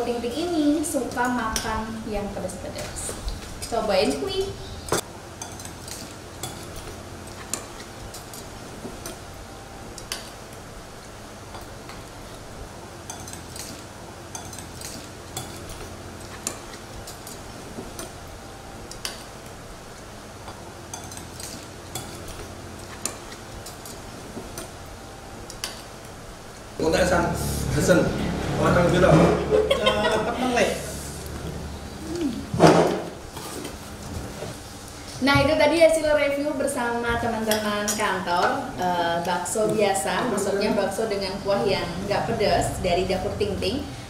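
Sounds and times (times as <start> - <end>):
steady low hum: 0.0 - 44.0
cutlery clinking against a bowl: 4.9 - 9.2, 13.1 - 18.2, 20.5 - 24.7.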